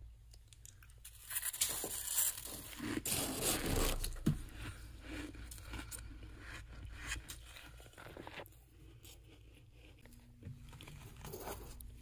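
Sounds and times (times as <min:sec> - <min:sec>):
spoon scraping frost: 0:01.1 - 0:10.2.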